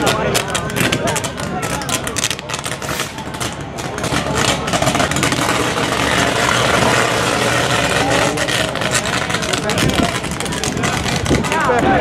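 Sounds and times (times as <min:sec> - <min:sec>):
electrical arcing buzz: 0:02.3 - 0:11.5.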